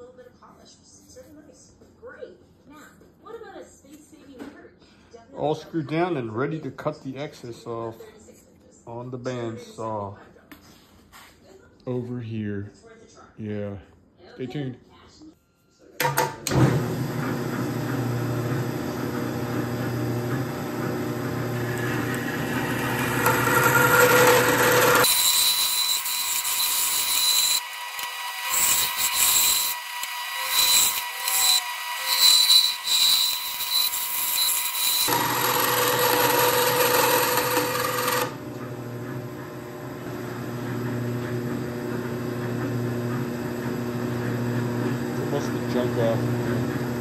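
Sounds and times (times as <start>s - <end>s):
bandsaw cutting: 16.4s - 39.7s.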